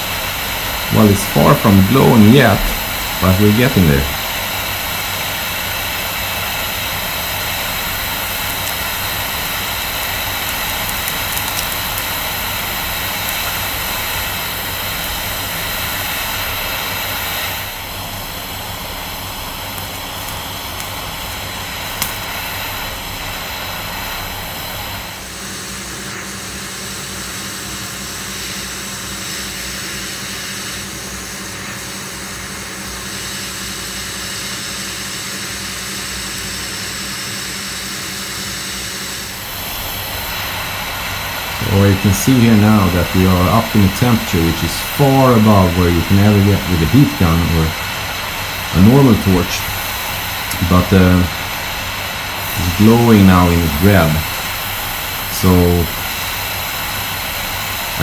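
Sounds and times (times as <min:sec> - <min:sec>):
torch flame hissing: 0:00.0 - 0:58.0
sharp click: 0:09.8 - 0:12.1.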